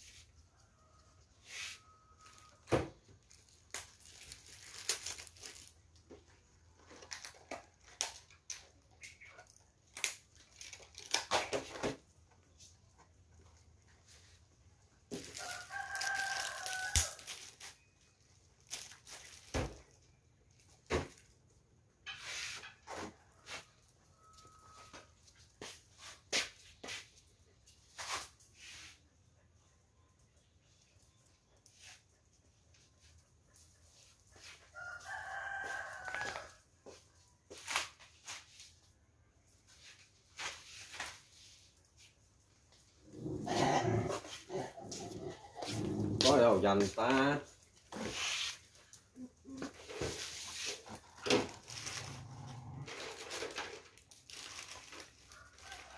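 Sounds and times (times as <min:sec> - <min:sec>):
rooster crowing: 0:15.3 - 0:17.3, 0:23.4 - 0:25.0, 0:34.7 - 0:37.0, 0:55.3 - 0:55.9.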